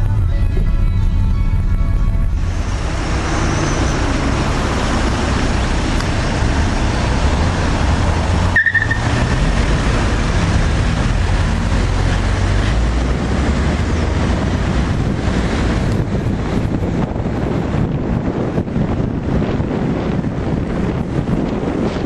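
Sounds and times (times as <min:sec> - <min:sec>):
car engine and road noise: 0:00.0 - 0:22.0
short high squeak: 0:03.2 - 0:04.2.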